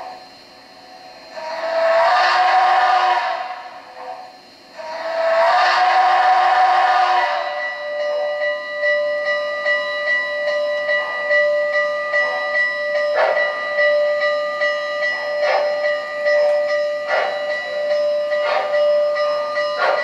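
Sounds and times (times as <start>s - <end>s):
model train running: 0.0s - 20.0s
bell ringing: 4.8s - 20.0s.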